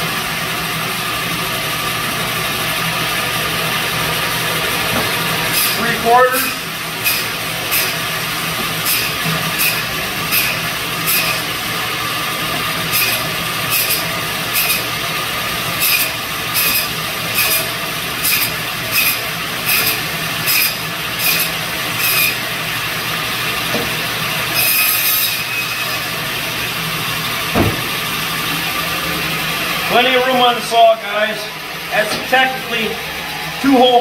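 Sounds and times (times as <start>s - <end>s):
band saw running: 0.0s - 34.0s
saw rasping through bone: 5.5s - 8.0s, 8.8s - 11.6s, 12.8s - 15.0s, 15.7s - 22.4s.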